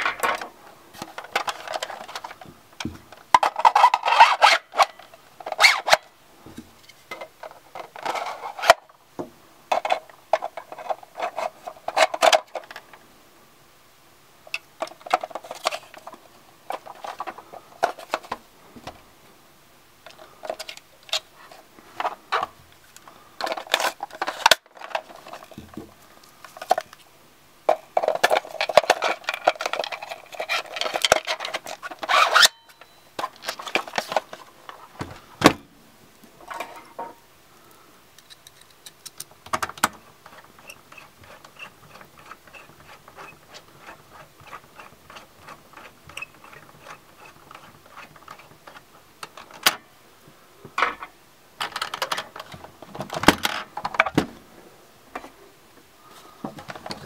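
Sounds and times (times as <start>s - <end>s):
plastic parts clicking: 0.0s - 6.0s, 22.0s - 25.6s, 27.7s - 32.5s, 38.2s - 49.8s, 51.6s - 54.3s
plastic scraping: 0.0s - 6.0s.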